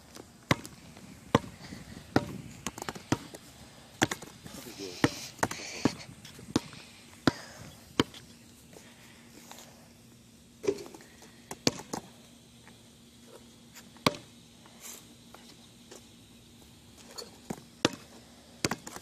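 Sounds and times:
basketball thudding on concrete: 0.5s - 3.4s, 4.0s - 4.3s, 5.0s - 8.2s, 11.5s - 12.1s, 14.0s - 14.3s, 17.4s - 19.0s.

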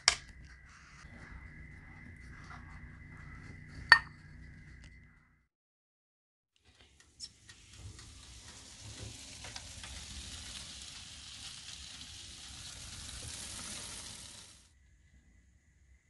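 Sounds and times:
crackles: 6.6s - 14.8s
pastry sizzling in oven: 6.7s - 14.8s.

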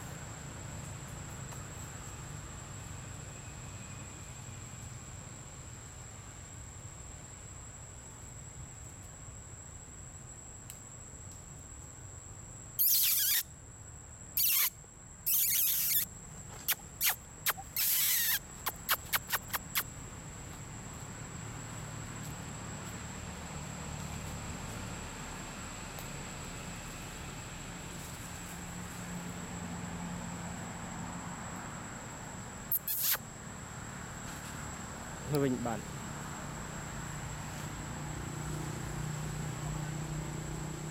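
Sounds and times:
shrill animal squeals and chirps: 12.8s - 13.5s, 14.4s - 14.7s, 15.3s - 16.1s, 16.7s - 19.8s, 32.7s - 33.2s.

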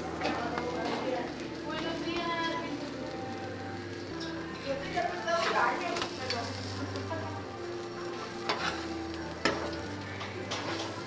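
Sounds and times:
food sizzling on a griddle: 0.0s - 11.0s
metal spatula scraping griddle: 4.1s - 7.2s, 7.8s - 11.0s.

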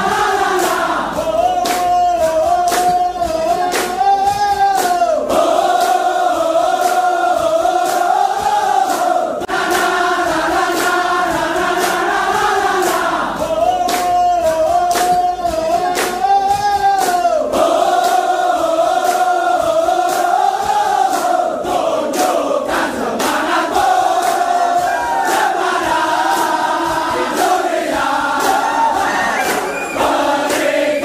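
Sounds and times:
regular beat: 0.0s - 31.0s
soldiers chanting in unison: 5.0s - 13.8s, 17.3s - 31.0s.

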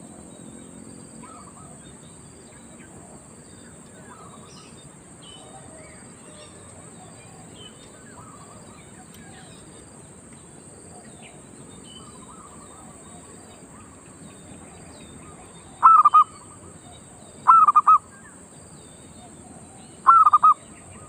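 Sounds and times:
small birds chirping: 0.0s - 21.0s
distant coos: 15.2s - 16.6s, 17.4s - 18.1s, 20.0s - 21.0s
dove cooing: 15.6s - 16.5s, 17.4s - 18.0s, 20.0s - 21.0s.

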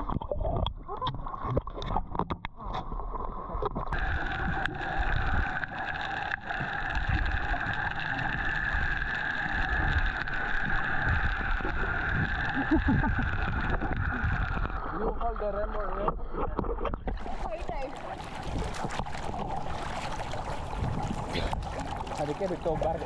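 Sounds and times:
boat motor humming: 7.9s - 23.0s.

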